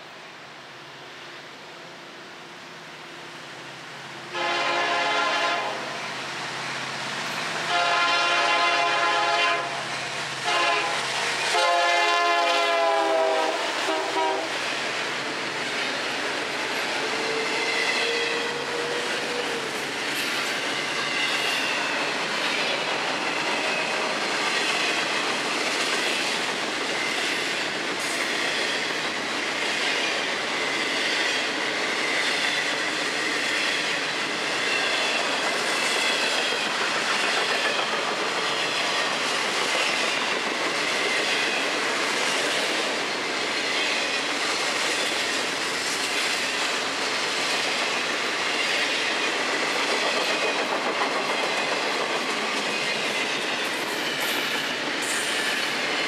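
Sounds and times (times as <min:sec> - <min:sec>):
train wheels rumbling on rails: 0:01.7 - 0:56.0.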